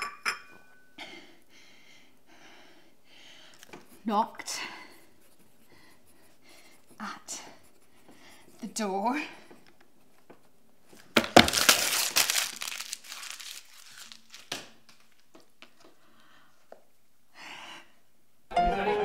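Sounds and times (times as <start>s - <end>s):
paper tearing and crumpling: 11.2s - 14.7s.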